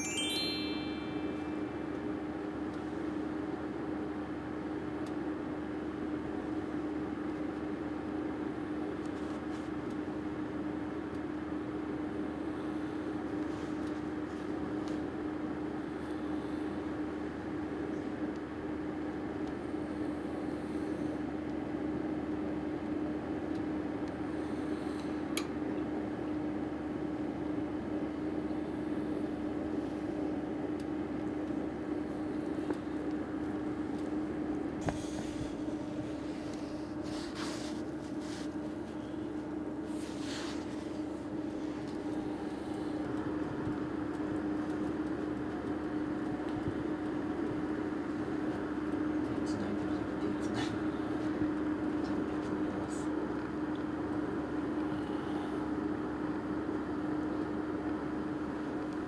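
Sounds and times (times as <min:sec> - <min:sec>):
appliance hum: 0:00.0 - 0:59.0.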